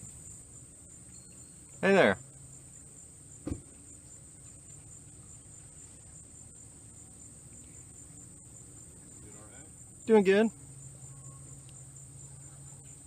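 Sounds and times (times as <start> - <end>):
high-pitched insect chorus: 0.0 - 13.0
short knock: 3.4 - 3.7.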